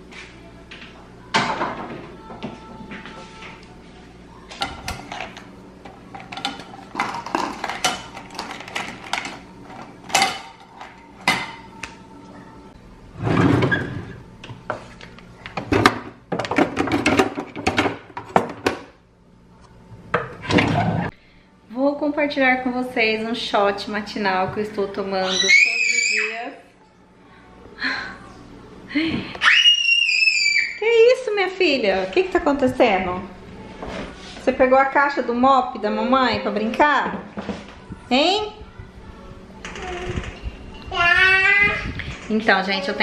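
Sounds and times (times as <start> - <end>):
utensils rattling and clinking: 4.6 - 11.7.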